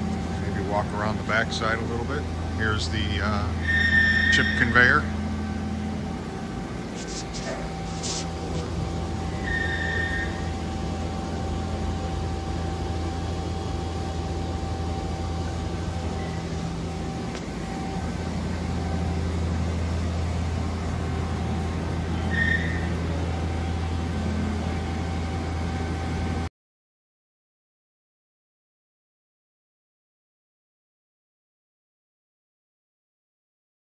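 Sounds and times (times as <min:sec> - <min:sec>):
machine low hum: 0:00.0 - 0:26.5.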